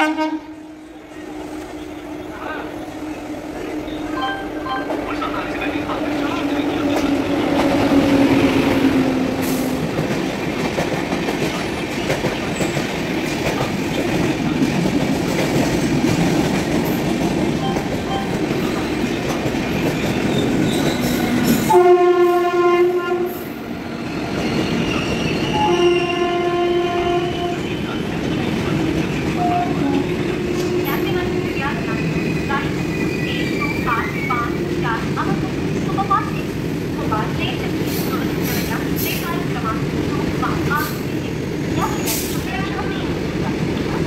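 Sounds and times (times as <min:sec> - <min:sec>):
locomotive horn: 0:00.0 - 0:00.7, 0:21.7 - 0:23.5, 0:25.5 - 0:27.7, 0:29.4 - 0:31.4
train wheels rushing on rails: 0:00.8 - 0:44.0.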